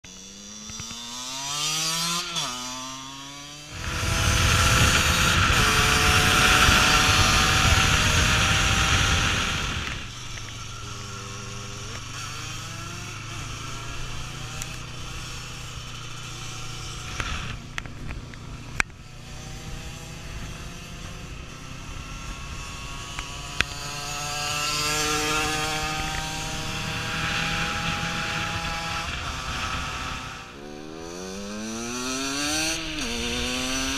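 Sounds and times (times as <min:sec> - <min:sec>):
two-stroke motorcycle engine revving: 0:00.1 - 0:33.9
wind noise: 0:03.7 - 0:11.2, 0:16.7 - 0:33.9.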